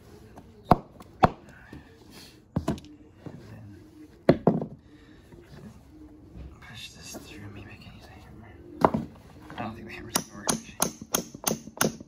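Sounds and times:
hammer tapping wooden dowel: 0:10.1 - 0:12.0.

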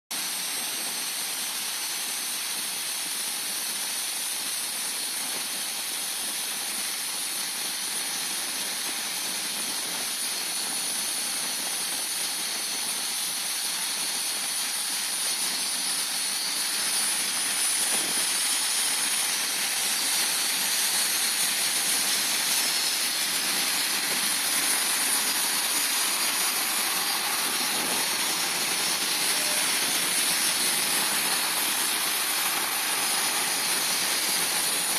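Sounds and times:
jet engines whining: 0:20.8 - 0:34.9.

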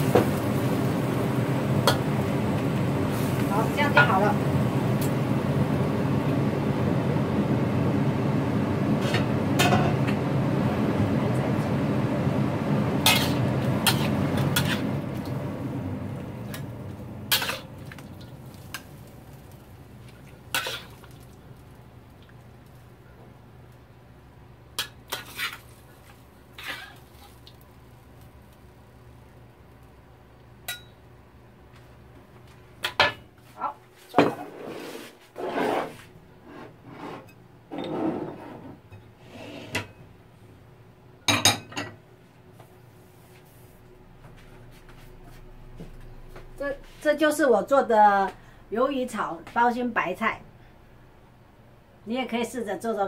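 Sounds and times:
metal spatula scraping wok: 0:13.0 - 0:15.0, 0:17.3 - 0:17.7, 0:20.5 - 0:21.0, 0:24.8 - 0:25.7, 0:26.6 - 0:27.3.

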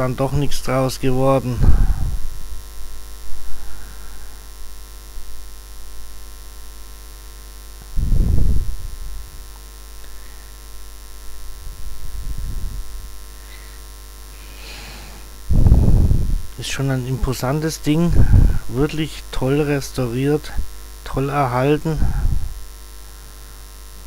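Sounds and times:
low electrical hum: 0:00.0 - 0:24.0
wind buffeting microphone: 0:01.6 - 0:02.2, 0:08.0 - 0:09.0, 0:11.6 - 0:13.0, 0:15.5 - 0:16.5, 0:18.1 - 0:18.7.

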